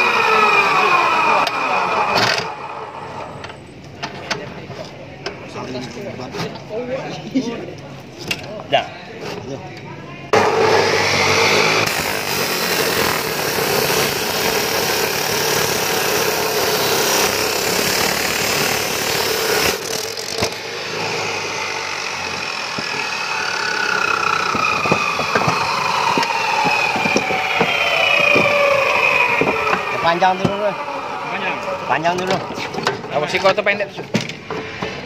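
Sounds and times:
saw grinding through steel: 0:00.0 - 0:03.3, 0:10.4 - 0:33.4
saw disc winding down whine: 0:00.0 - 0:03.4, 0:10.4 - 0:32.9.

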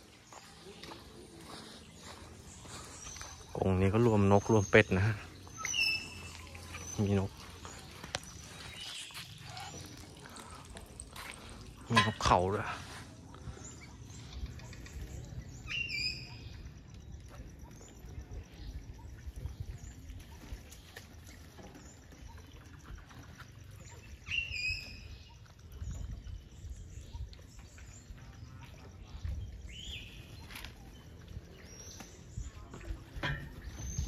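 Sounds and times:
high bird calls: 0:00.0 - 0:34.0.

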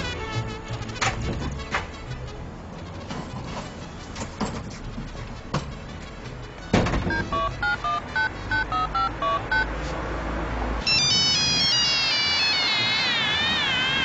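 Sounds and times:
telephone keypad beeps: 0:07.1 - 0:09.7, 0:10.9 - 0:12.8
gliding tones: 0:10.9 - 0:14.0.

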